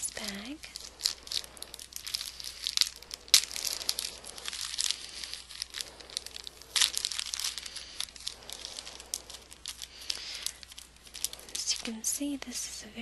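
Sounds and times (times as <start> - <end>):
bag crinkling and rustling: 0.0 - 12.7.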